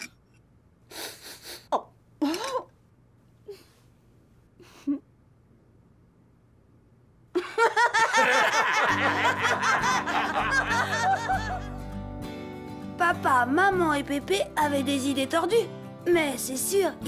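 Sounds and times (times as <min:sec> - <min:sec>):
boy laughing: 0:07.4 - 0:11.8
soft background music: 0:08.8 - 0:17.0.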